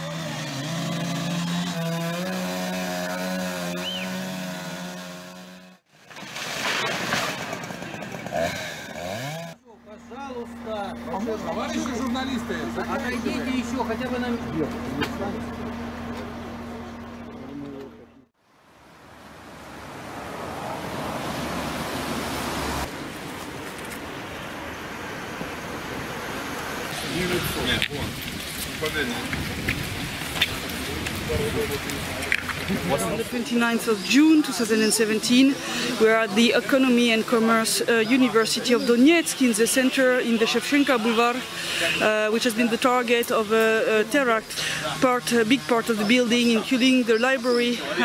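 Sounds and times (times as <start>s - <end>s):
motor droning: 0.0s - 5.9s, 8.4s - 18.2s.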